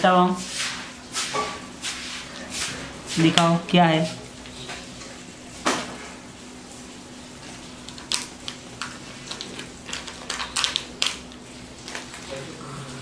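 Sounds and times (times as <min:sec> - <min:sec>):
plastic toy pieces clicking: 0:09.3 - 0:11.2.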